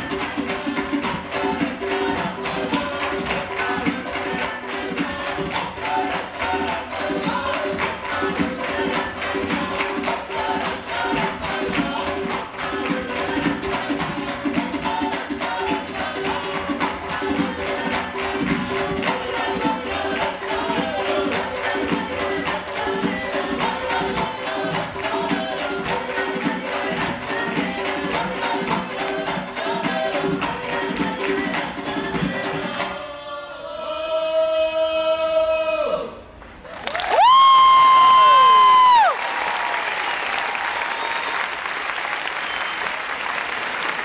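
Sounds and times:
fast hand drumming: 0.0 - 33.0
polyphonic folk singing: 0.0 - 36.4.

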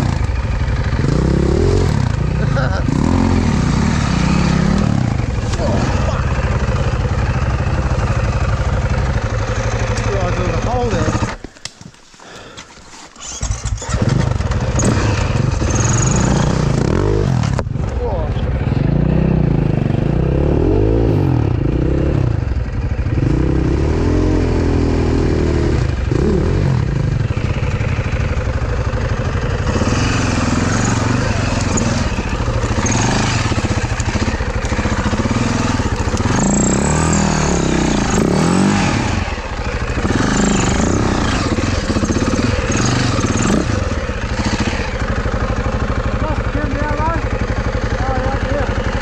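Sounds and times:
dirt bike engine revving: 0.0 - 11.4, 13.2 - 49.0
rattling and scraping: 9.7 - 16.4, 29.6 - 45.1.

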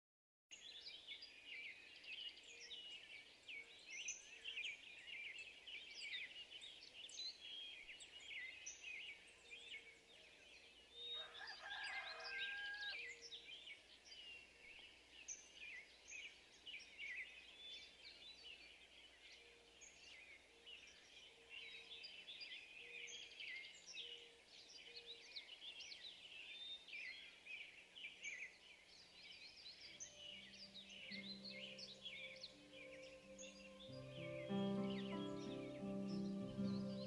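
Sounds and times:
small birds chirping and warbling: 0.5 - 37.0
lower bird call: 29.9 - 37.0.

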